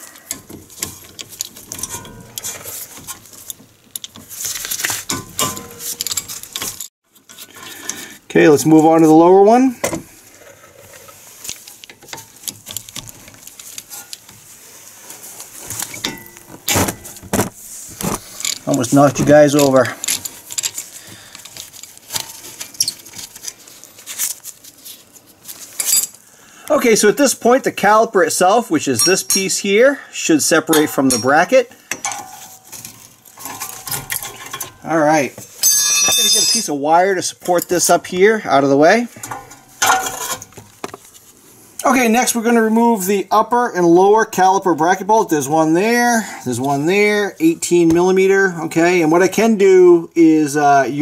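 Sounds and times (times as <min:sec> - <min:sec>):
small metal clinks: 0:35.6 - 0:36.7.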